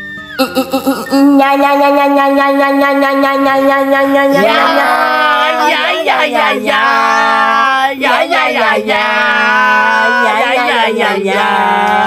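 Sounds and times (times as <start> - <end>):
person singing long wavering notes: 0.4 - 8.0.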